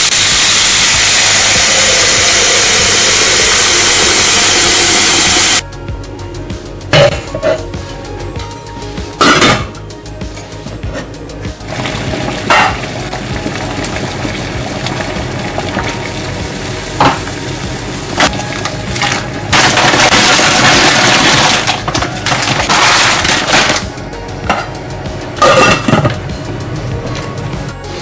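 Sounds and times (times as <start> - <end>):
food sizzling and stirring: 0.0 - 5.6, 11.6 - 23.8
background music: 0.2 - 28.0.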